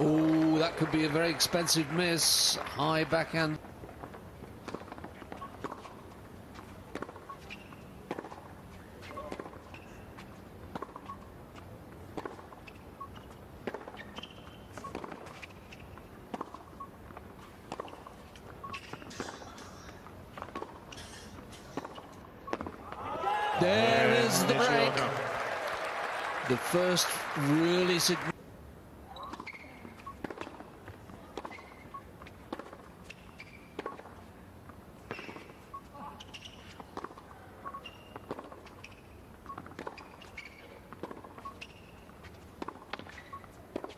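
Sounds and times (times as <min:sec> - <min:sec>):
shoe squeaks on court: 0:07.2 - 0:08.0, 0:08.7 - 0:11.3, 0:12.6 - 0:16.0, 0:17.4 - 0:22.7, 0:29.1 - 0:30.5, 0:31.4 - 0:34.2, 0:35.0 - 0:43.9.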